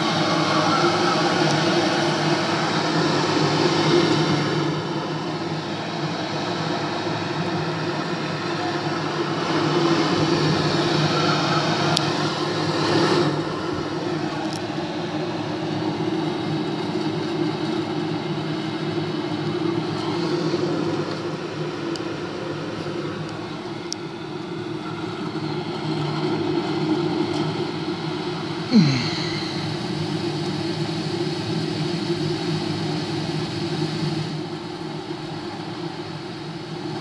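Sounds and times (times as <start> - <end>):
rushing roar from speaker: 0.0 - 7.3.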